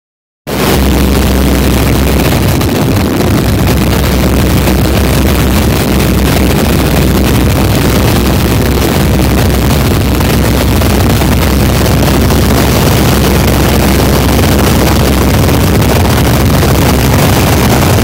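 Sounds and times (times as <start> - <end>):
biplane engine and propeller: 0.5 - 18.0
wind rushing: 0.5 - 18.0.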